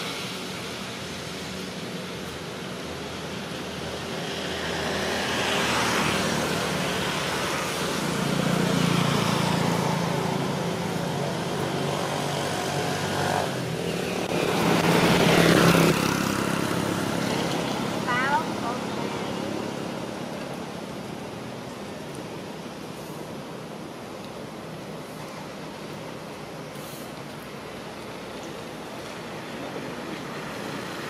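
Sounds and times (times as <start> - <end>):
vehicles passing on road: 0.0 - 31.0.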